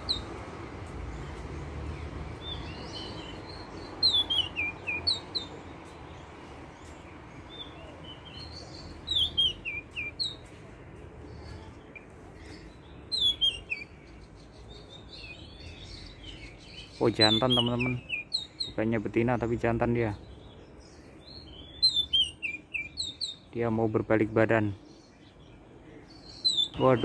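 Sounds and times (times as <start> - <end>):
bird song whistled phrases: 2.4 - 5.5, 7.5 - 10.4, 11.4 - 18.8, 20.2 - 23.5, 25.0 - 27.0.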